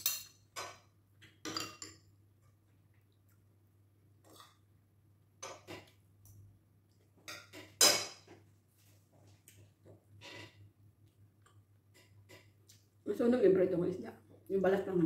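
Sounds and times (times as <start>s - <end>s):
cutlery clinking on plate: 0.0s - 2.0s.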